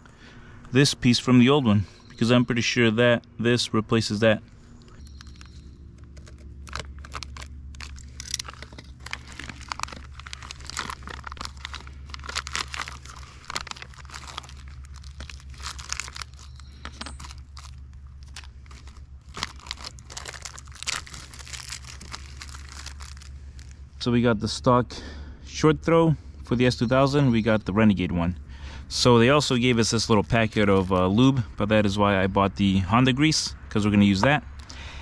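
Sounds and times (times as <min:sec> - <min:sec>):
low hum: 0:00.0 - 0:35.0
plastic bags crinkling and tearing: 0:04.9 - 0:23.9, 0:29.4 - 0:31.4.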